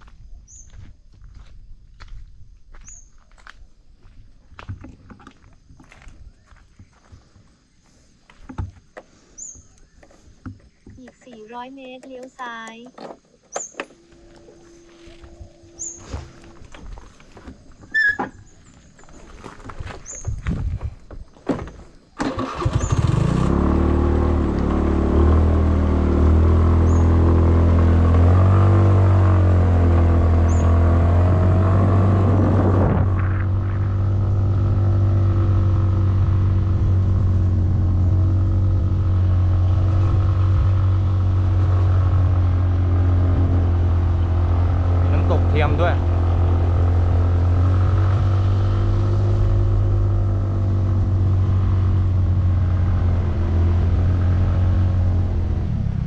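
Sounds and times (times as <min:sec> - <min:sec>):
steady low hum: 0:13.8 - 0:17.8, 0:31.2 - 0:56.0
motorcycle engine running: 0:22.3 - 0:56.0.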